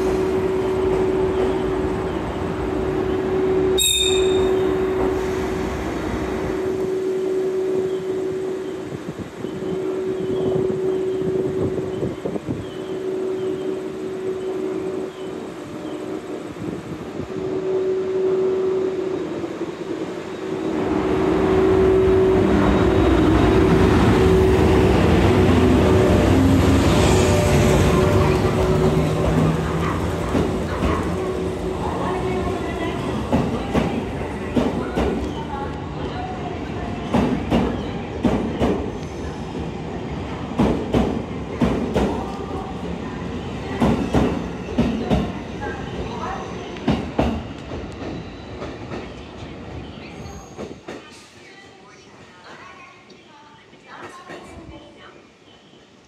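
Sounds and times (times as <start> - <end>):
train wheels rumbling on rails: 18.9 - 51.8.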